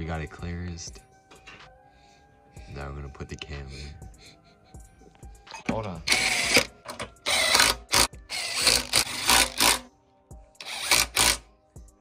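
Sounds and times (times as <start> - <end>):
cordless power driver spinning bolts: 6.1 - 9.9, 10.6 - 11.4.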